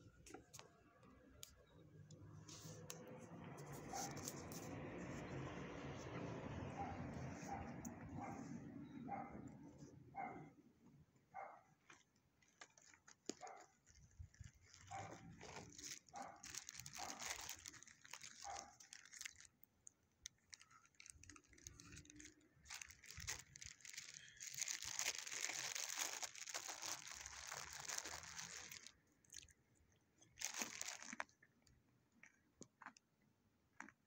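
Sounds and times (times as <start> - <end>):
rustling and crunching: 11.8 - 29.6, 30.2 - 31.6.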